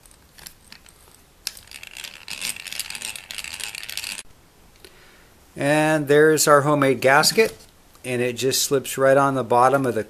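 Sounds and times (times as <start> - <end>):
hand drill clicking rattle: 0.0 - 4.2.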